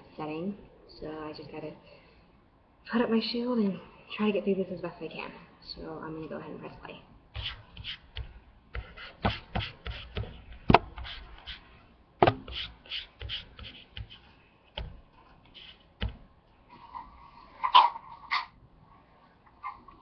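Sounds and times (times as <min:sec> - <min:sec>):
loud knocks: 0:12.2 - 0:12.6.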